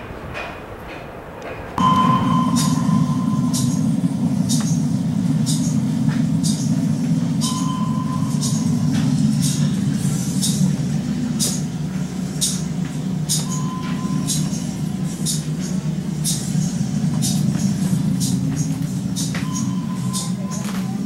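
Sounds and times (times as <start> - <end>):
low machinery rumble: 0.0 - 21.0
steady high beep: 1.8 - 5.8, 7.2 - 9.9, 13.4 - 15.4, 19.3 - 21.0.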